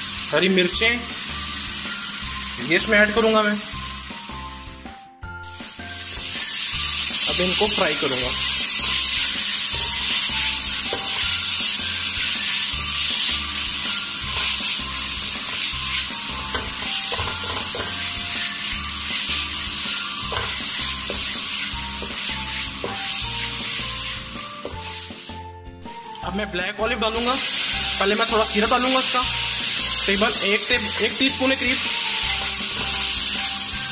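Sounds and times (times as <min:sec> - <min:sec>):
vegetables sizzling in oil: 0:00.0 - 0:26.3, 0:26.9 - 0:33.9
spatula scraping pan: 0:05.6 - 0:25.4, 0:27.3 - 0:33.7.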